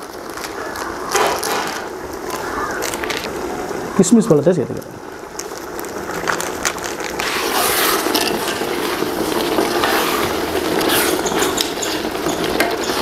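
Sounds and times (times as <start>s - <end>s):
steady hiss from hot pot: 0.0s - 13.0s
metal ladle scraping pot: 7.2s - 13.0s.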